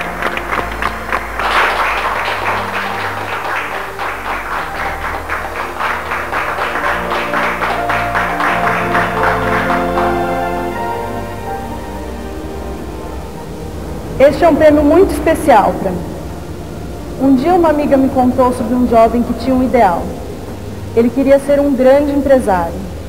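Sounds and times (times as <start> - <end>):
people clapping: 0.0 - 11.8
background music: 0.0 - 23.0.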